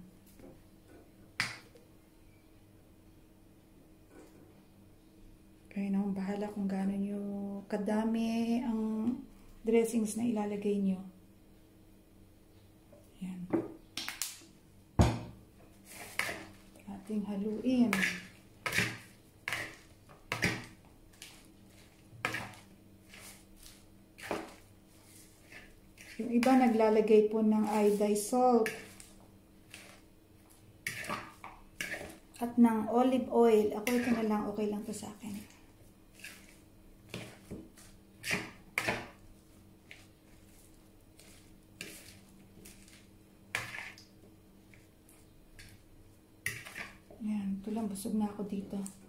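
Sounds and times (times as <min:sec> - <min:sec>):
fork scraping plastic bowl: 0:15.8 - 0:16.6, 0:17.8 - 0:26.8, 0:27.6 - 0:32.2, 0:33.8 - 0:34.4, 0:36.1 - 0:39.2, 0:39.8 - 0:43.0, 0:46.5 - 0:47.1.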